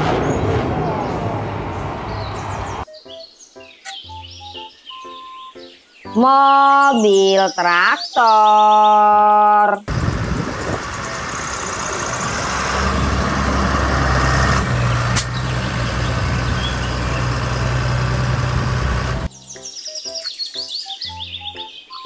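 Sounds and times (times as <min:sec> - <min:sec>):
tractor diesel engine running: 0:09.9 - 0:19.3.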